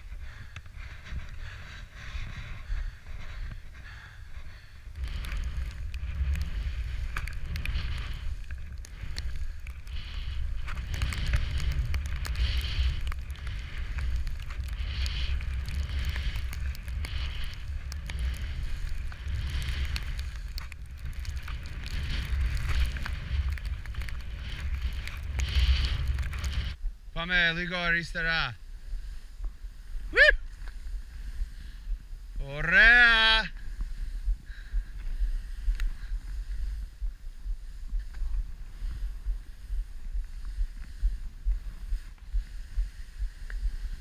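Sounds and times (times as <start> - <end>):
wind buffeting microphone: 0.0 - 27.2
skis hissing through snow: 5.0 - 26.8.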